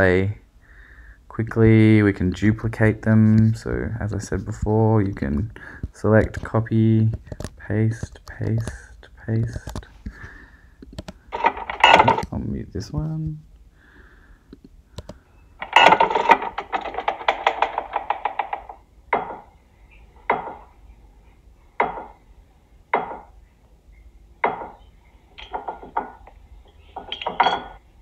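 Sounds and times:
rapid rattling clicks: 15.6s - 18.8s
sharp knocks: 15.8s - 19.5s, 21.8s - 22.2s, 23.0s - 23.3s, 24.4s - 24.8s.

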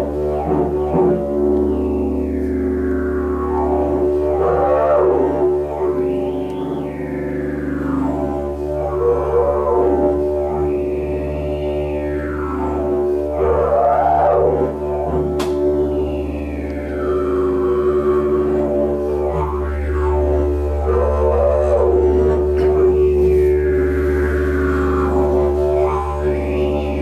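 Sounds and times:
didgeridoo drone: 0.0s - 27.0s.

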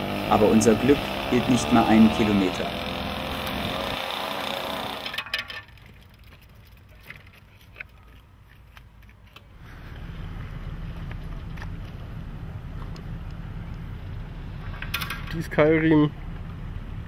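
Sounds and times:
moped engine running: 0.0s - 5.5s
low steady rumble: 9.6s - 17.0s.

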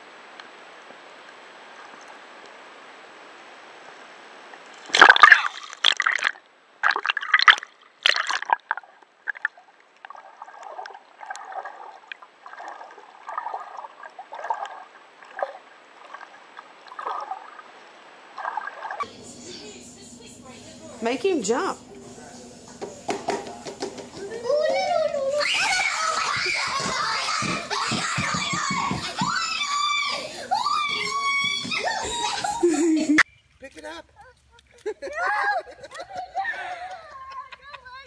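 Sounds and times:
water sloshing and splashing: 4.5s - 19.1s.

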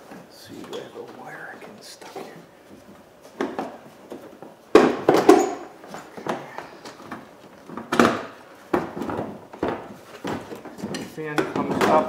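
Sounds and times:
plastic shroud knocking and scraping: 6.2s - 12.0s.

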